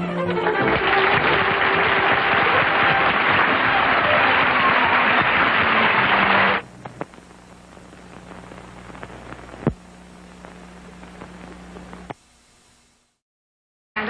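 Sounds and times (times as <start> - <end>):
audience applauding: 0.0 - 6.6
crackling record surface noise: 0.6 - 13.2
steady low hum: 6.6 - 13.2.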